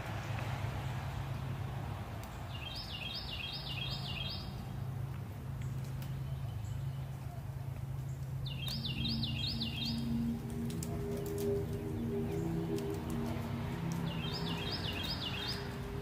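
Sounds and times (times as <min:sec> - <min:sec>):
deep drone hum: 0:00.0 - 0:16.0
songbird whistling: 0:08.5 - 0:10.2.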